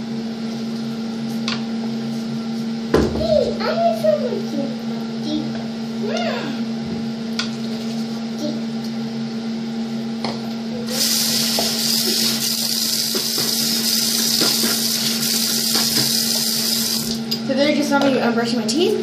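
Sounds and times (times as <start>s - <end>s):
tap water running into sink: 10.9s - 17.2s.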